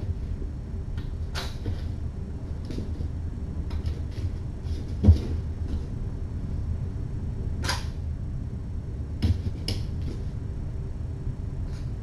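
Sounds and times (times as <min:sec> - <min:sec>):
low room hum: 0:00.0 - 0:12.0
dull thump: 0:05.0 - 0:05.4, 0:09.2 - 0:10.2
sharp click: 0:07.6 - 0:07.9.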